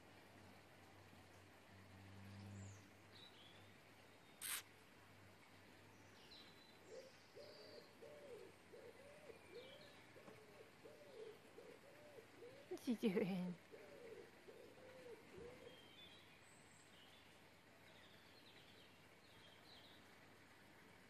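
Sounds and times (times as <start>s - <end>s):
small birds chirping: 2.1s - 4.7s, 5.4s - 20.2s
low repeated cooing call: 6.8s - 16.2s.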